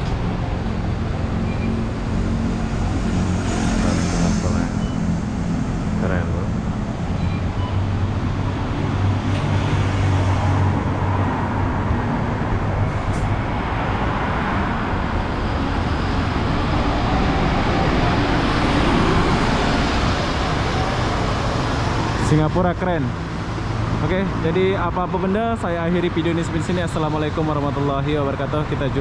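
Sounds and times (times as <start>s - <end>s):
diesel bus engine hum: 0.0s - 29.0s
road noise: 0.0s - 29.0s.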